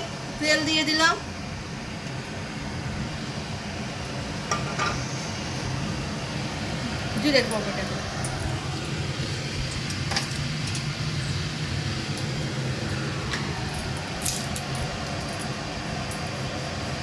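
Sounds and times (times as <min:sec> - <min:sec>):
steady low hum: 0:00.0 - 0:17.0
spices clinking into hot oil: 0:06.9 - 0:16.8.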